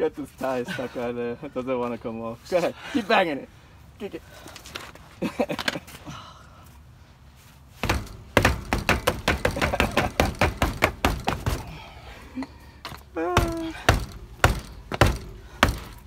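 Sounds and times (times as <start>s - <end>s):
boot kicking a tire: 7.8s - 11.8s, 12.9s - 16.0s.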